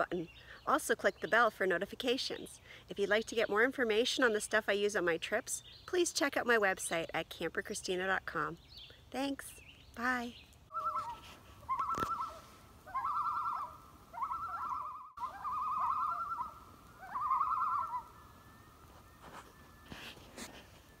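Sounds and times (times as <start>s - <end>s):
bird call quavering: 10.7s - 18.4s.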